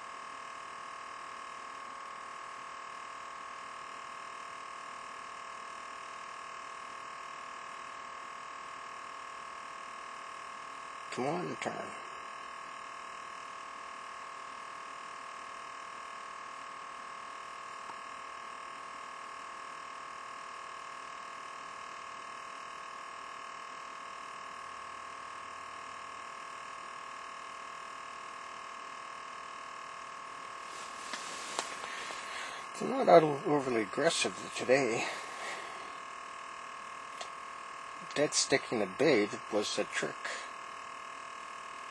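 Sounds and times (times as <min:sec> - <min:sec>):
electrical whine and hiss: 0:00.0 - 0:15.4, 0:29.3 - 0:41.9
faint rustle: 0:30.6 - 0:32.7.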